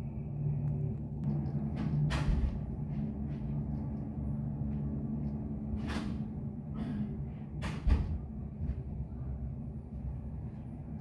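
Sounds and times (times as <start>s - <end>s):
low rumbling hum: 0.0s - 11.0s.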